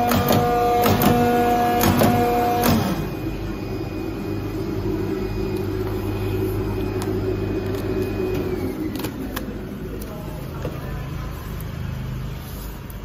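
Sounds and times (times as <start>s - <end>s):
cutting machine humming: 0.0s - 10.6s
falling whine: 2.7s - 11.3s.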